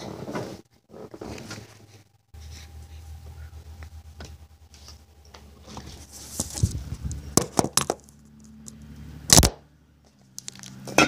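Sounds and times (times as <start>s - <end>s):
rustling: 0.0s - 8.7s
faint low hum: 0.0s - 10.4s.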